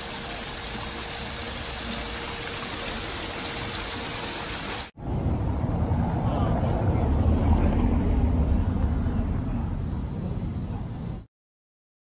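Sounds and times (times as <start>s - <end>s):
waterfall rushing into pool: 0.0s - 5.0s.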